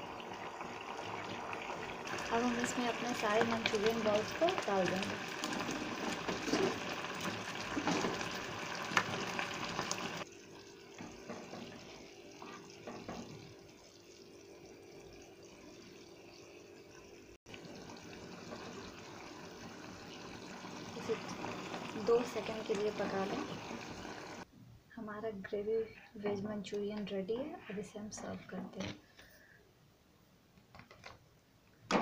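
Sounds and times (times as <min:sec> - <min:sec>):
spatula stirring: 0:05.3 - 0:08.2.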